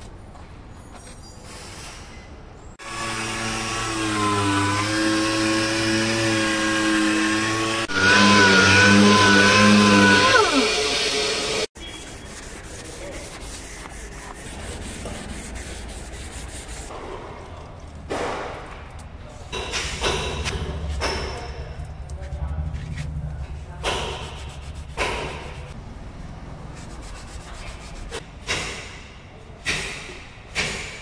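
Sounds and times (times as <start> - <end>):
pneumatic sander whine: 2.8 - 11.7
soft rubbing: 11.8 - 16.9, 21.9 - 25.8, 26.6 - 28.2.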